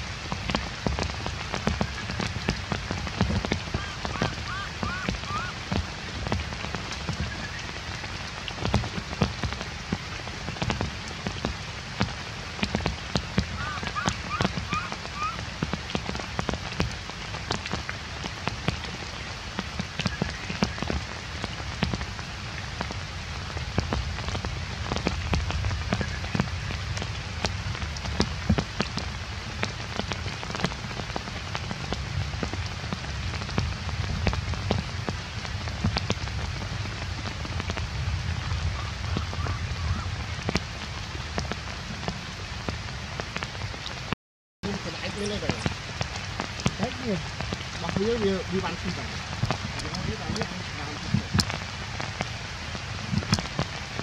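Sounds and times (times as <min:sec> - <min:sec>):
heavy rain on wet ground: 0:00.0 - 0:54.0.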